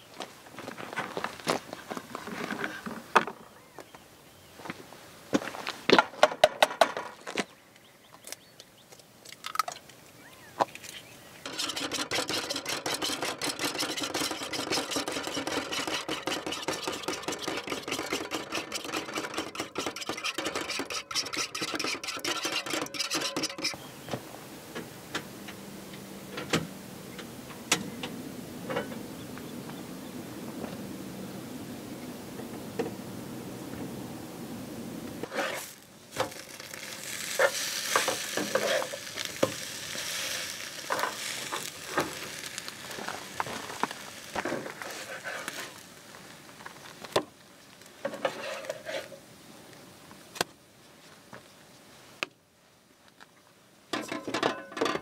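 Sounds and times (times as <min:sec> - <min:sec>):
fork whisking eggs in bowl: 0:11.5 - 0:23.8.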